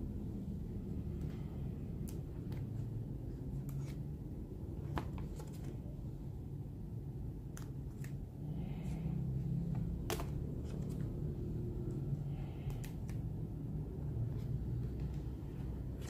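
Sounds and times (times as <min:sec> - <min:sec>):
steady low hum: 0:00.0 - 0:16.0
plastic binder pages turning: 0:04.8 - 0:05.9, 0:10.0 - 0:11.2.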